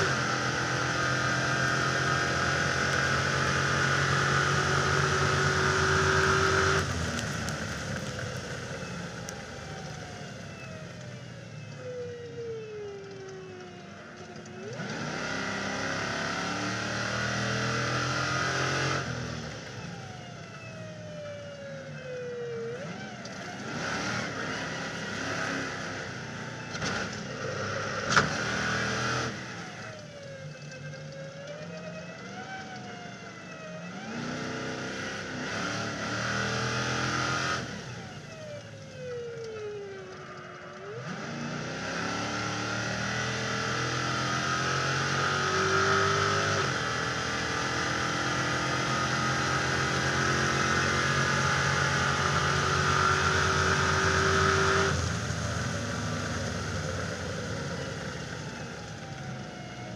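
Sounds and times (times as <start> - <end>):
racing engine revving: 14.7 - 19.6, 22.8 - 29.9, 34.0 - 38.0, 40.8 - 59.0.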